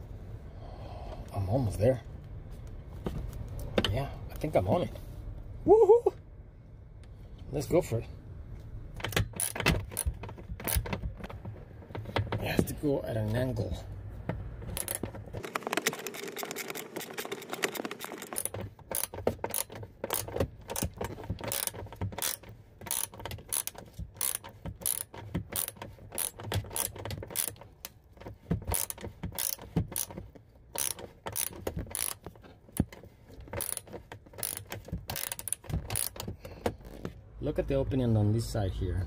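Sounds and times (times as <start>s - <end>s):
ratchet wrench clicking: 9.0s - 11.0s, 14.7s - 15.1s, 16.1s - 28.0s, 28.7s - 32.2s, 33.6s - 36.3s.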